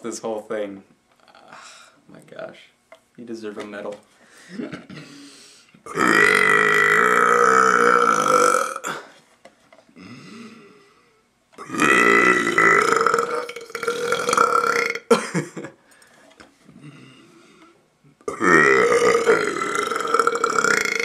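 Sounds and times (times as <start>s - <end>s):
man burping: 1.2s - 1.7s, 5.8s - 9.2s, 10.0s - 10.8s, 11.6s - 15.7s, 18.2s - 21.0s.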